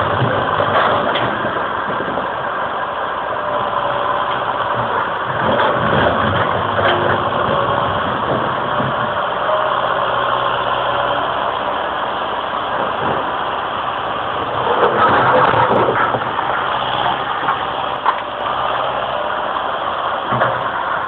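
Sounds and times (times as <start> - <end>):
excavator diesel engine running: 0.0 - 21.0.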